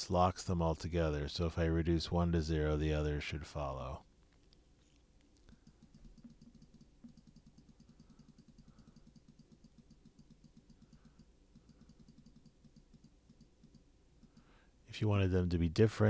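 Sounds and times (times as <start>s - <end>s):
computer mouse clicking: 4.3s - 14.6s.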